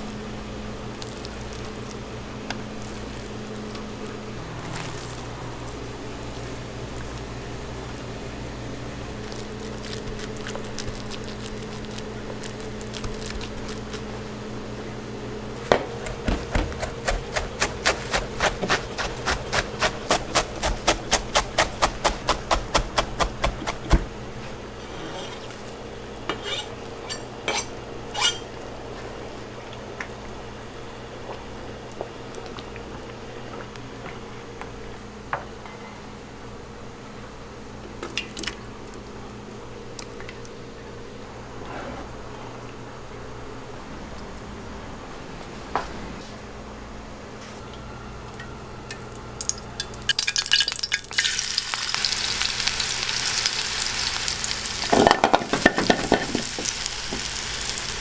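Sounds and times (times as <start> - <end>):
kitchen fan humming: 0.0 - 58.0
knife chopping on plastic board: 15.7 - 24.1.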